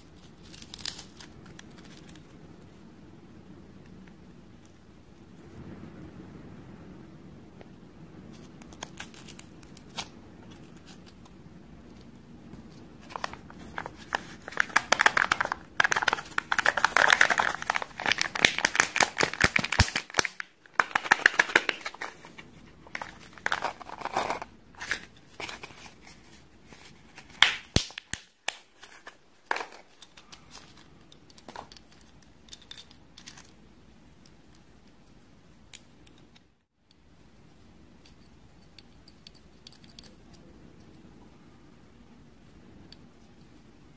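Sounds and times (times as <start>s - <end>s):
plastic wrapper crinkling and tearing: 0.0s - 2.3s, 8.6s - 11.3s, 13.0s - 30.9s.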